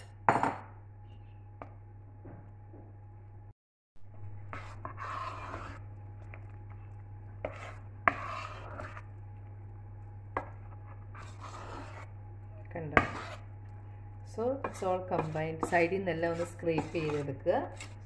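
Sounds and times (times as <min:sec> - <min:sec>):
spoon scraping batter in pan: 0:04.5 - 0:06.6, 0:07.4 - 0:09.2, 0:10.4 - 0:12.2, 0:12.8 - 0:13.6, 0:14.5 - 0:18.0.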